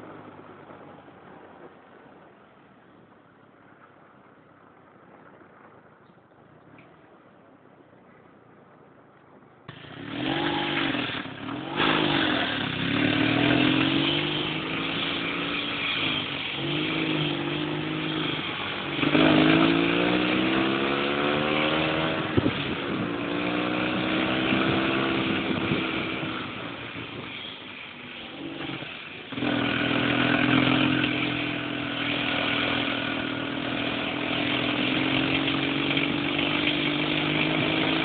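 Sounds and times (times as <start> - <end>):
dune buggy engine revving: 9.7 - 38.0.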